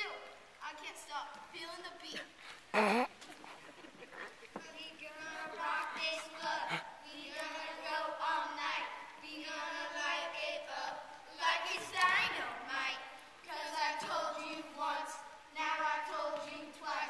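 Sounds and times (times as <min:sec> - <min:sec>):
children singing: 0:04.8 - 0:17.0.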